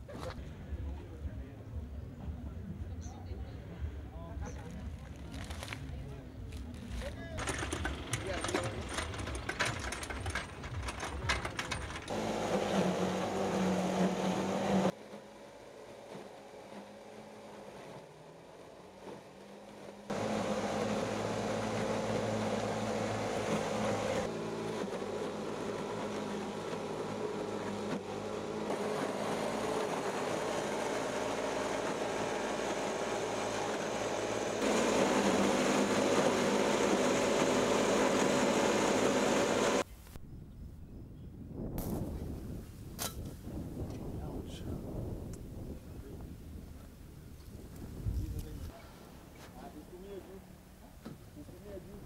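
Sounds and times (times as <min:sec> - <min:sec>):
motor-driven chopping machine grinding: 0:07.4 - 0:39.8.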